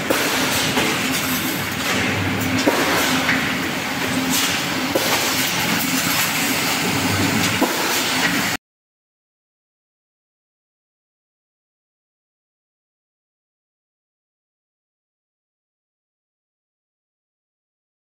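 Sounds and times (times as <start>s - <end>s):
machine humming: 0.0s - 8.6s
sharp machine knocks: 0.0s - 8.6s.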